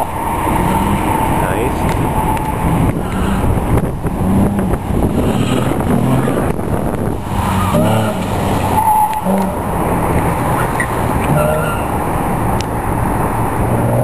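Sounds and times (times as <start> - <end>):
sports car engine revving: 0.0 - 14.0.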